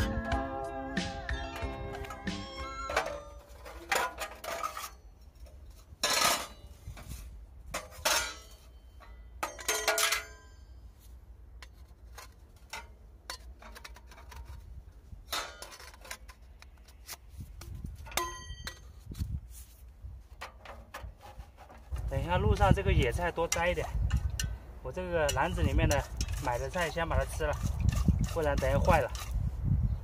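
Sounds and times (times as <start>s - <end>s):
metal chimney pipe clanking: 7.7s - 10.8s, 18.1s - 19.0s.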